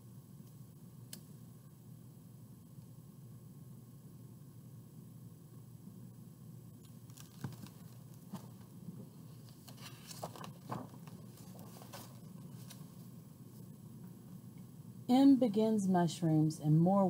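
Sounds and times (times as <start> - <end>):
paper rustling: 7.1 - 13.1
soft knocks of book: 7.2 - 8.7.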